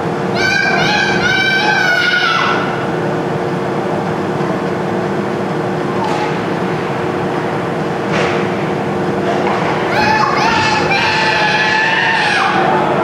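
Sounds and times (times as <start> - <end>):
indoor ice rink din: 0.0 - 13.0
steady low tones: 0.0 - 13.0
child shouting: 0.3 - 2.7, 9.9 - 12.6.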